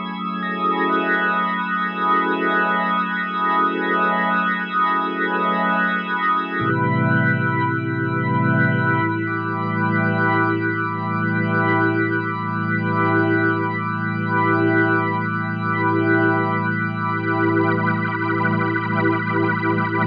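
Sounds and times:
synthesizer organ chords: 6.5s - 20.0s.

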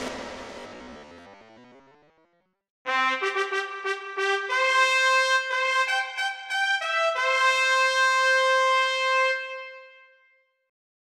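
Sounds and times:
brass fanfare: 2.9s - 10.3s.

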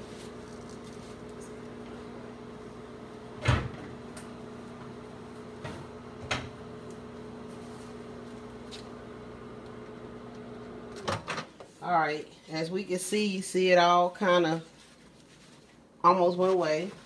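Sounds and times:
microwave oven humming: 0.0s - 11.3s.

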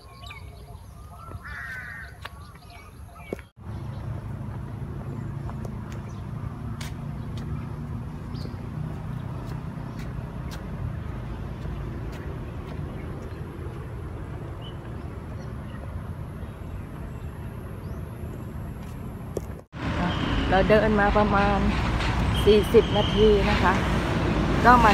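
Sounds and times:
road traffic rumble: 0.0s - 24.9s
footsteps on pavement: 0.5s - 15.8s, 18.6s - 19.7s.

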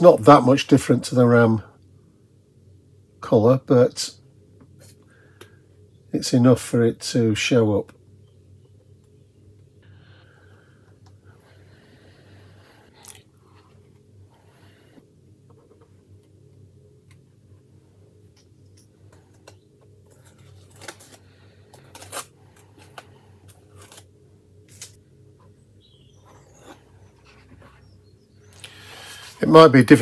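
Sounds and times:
tape peeling with tweezers: 19.1s - 24.1s.

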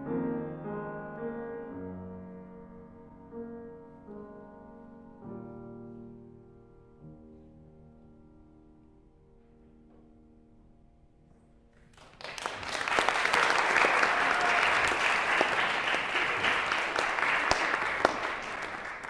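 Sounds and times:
piano chord: 0.0s - 11.7s
audience applause: 11.9s - 19.0s.

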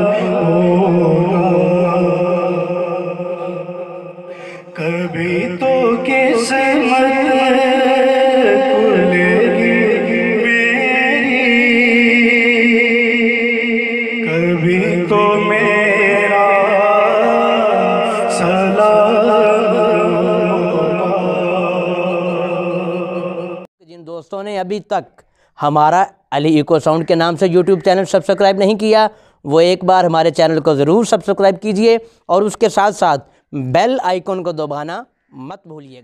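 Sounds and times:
man singing into a microphone: 0.0s - 23.7s.

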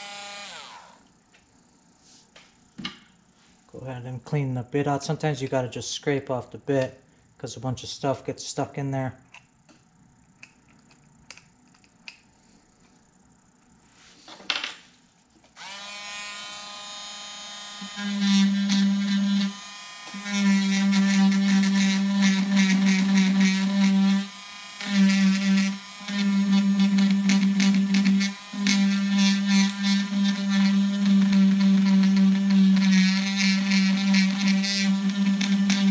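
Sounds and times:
rotary tool carving wood: 0.0s - 1.1s, 15.6s - 35.9s
rotary tool whining: 0.0s - 1.1s, 15.6s - 35.9s.

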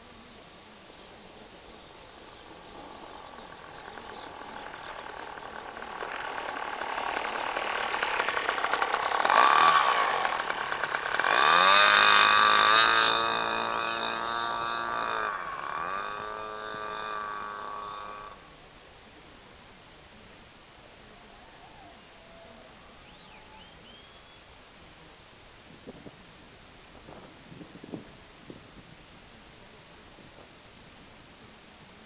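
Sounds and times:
model aeroplane engine: 0.0s - 21.2s.

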